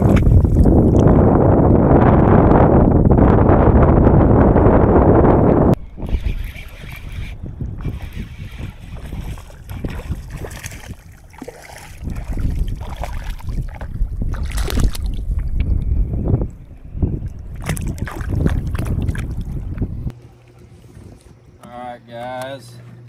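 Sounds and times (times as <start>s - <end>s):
wind buffeting microphone: 0.0s - 21.6s
water lapping: 6.0s - 15.5s, 17.2s - 21.0s.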